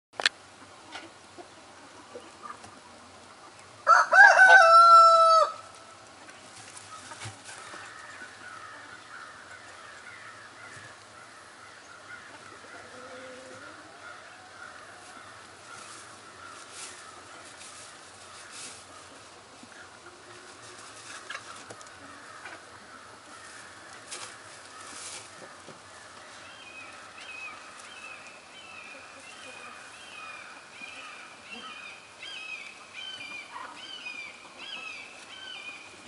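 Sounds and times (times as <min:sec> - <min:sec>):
rooster crowing: 0:03.8 - 0:05.7.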